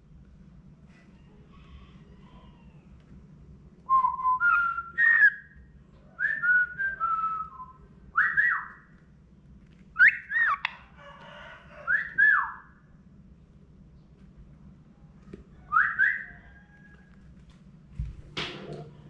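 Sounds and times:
cockatiel whistling: 10.0s - 10.7s, 15.7s - 16.4s.

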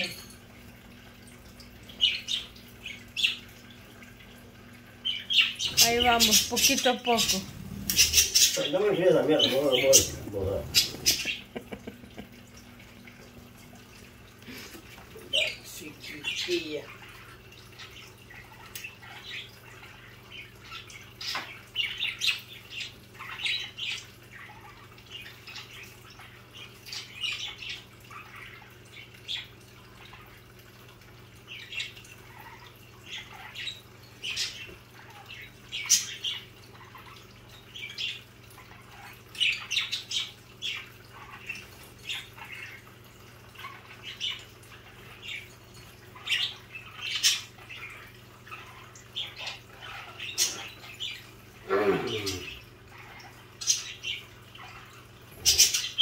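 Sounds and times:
budgerigars chirping: 5.0s - 11.4s.

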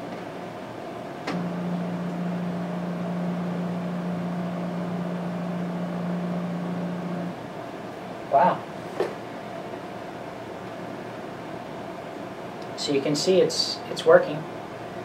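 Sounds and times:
faint background hum: 0.0s - 15.0s
motor starting click: 1.3s - 7.3s
stepper motor humming: 1.3s - 7.4s.

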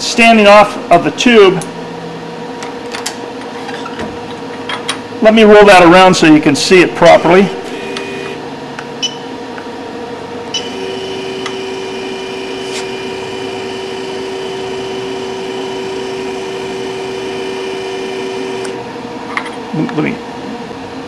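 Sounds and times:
motor whine: 7.5s - 8.5s, 10.5s - 18.8s.

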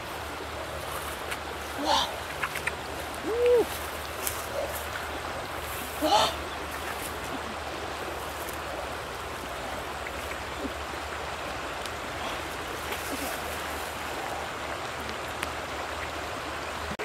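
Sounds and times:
faint ticks and scuffs: 0.0s - 6.1s, 6.7s - 7.4s
river water rushing: 0.0s - 17.0s.

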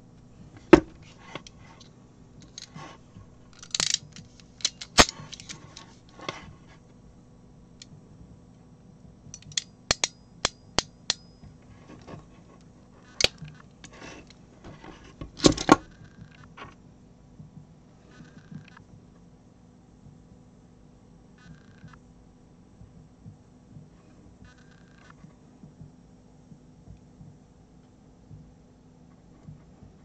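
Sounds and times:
crimping tool clicks: 9.3s - 11.4s.

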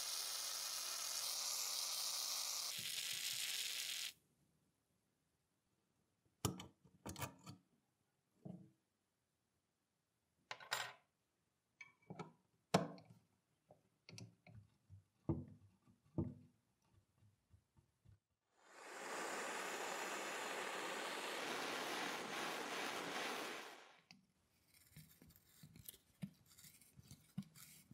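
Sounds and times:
aerosol spray hissing: 0.0s - 4.1s, 18.6s - 24.0s.

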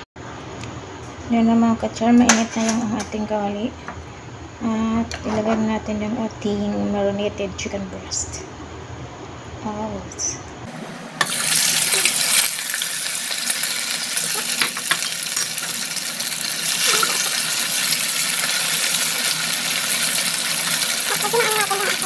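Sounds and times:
oil sizzling in a pan: 10.8s - 22.0s.

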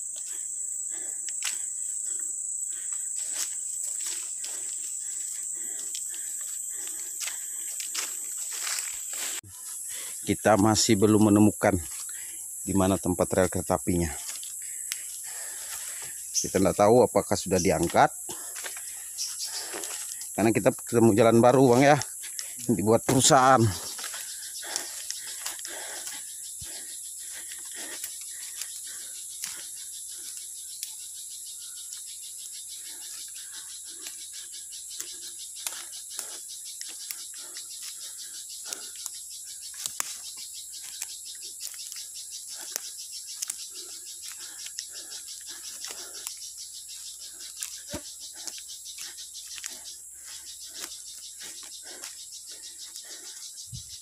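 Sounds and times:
insect chorus drone: 0.0s - 54.0s
footsteps on dry leaves: 6.7s - 9.6s.

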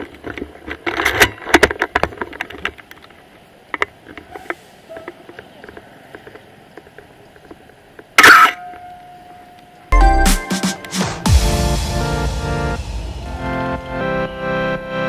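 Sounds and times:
low rumble: 11.2s - 15.0s.

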